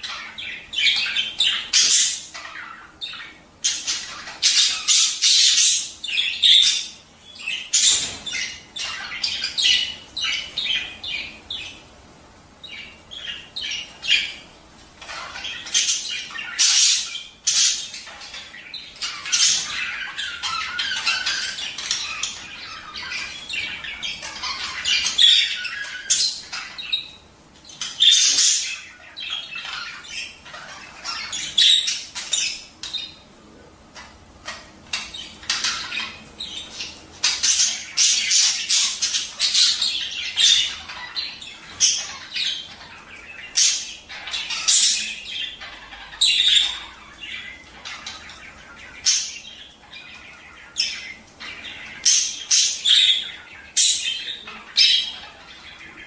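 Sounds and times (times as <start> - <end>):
budgerigars chattering and squawking: 0.0 - 12.0, 12.6 - 56.0.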